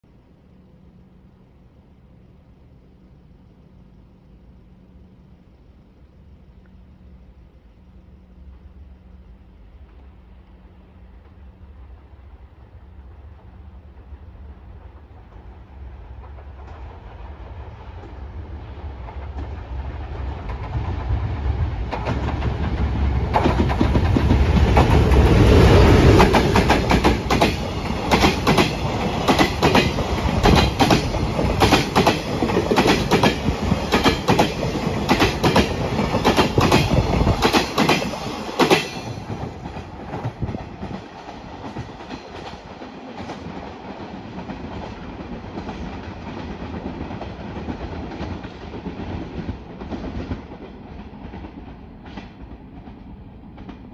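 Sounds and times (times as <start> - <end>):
freight train rumble: 0.0 - 53.9
wheels clickety-clack over rail joints: 14.7 - 53.9.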